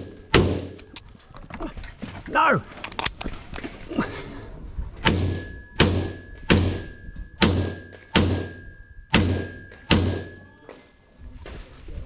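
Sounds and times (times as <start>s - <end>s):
pistol shots with echo: 5.1s - 10.5s.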